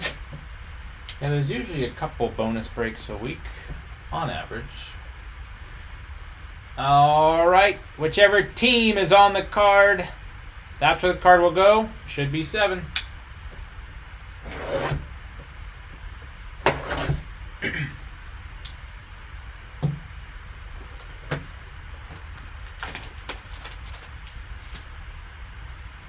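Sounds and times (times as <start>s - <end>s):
shrink wrap crackling: 22.1s - 25.2s.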